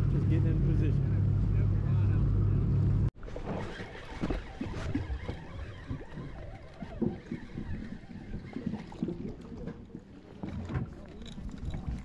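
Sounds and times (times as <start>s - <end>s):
water lapping against boat hull: 3.2s - 12.0s.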